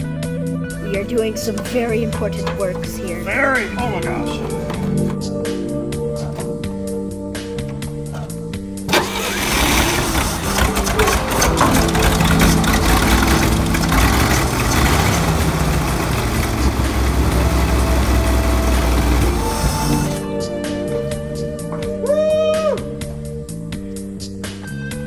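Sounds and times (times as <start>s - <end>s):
engine starting and running: 0.8s - 5.3s, 7.4s - 20.4s.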